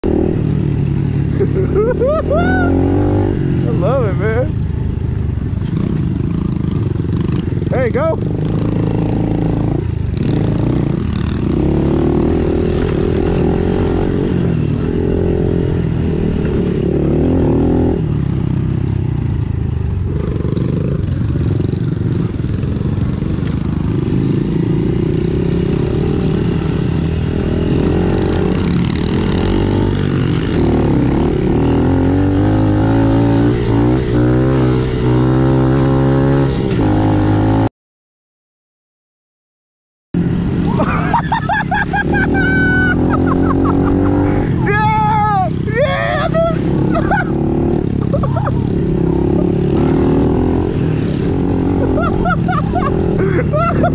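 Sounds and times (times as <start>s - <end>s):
small motorcycle engine: 45.6s - 53.9s.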